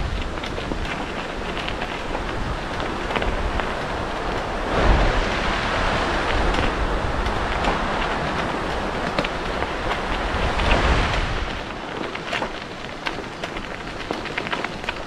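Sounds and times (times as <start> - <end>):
wind buffeting microphone: 0.0 - 15.0
stream rushing and splashing: 1.3 - 13.0.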